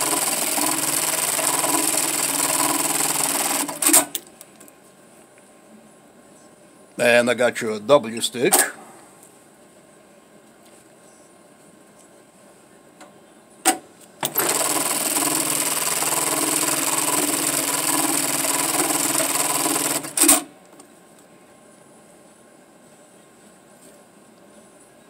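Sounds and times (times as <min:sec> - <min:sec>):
sewing machine stitching: 0:00.0 - 0:04.2, 0:14.2 - 0:20.5.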